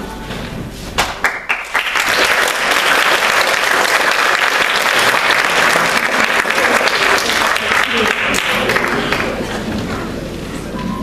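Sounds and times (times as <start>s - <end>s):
audience applauding: 1.2s - 10.1s.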